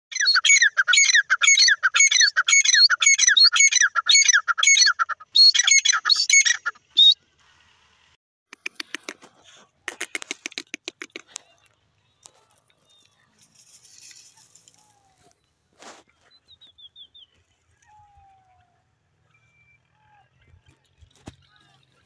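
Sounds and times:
rapid clicking sounds: 9.9 - 11.4.

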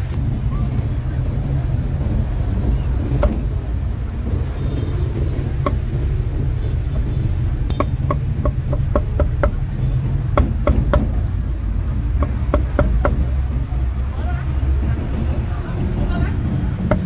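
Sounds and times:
cleaver chopping on wooden block: 7.7 - 9.6, 10.4 - 11.2, 12.2 - 13.2.

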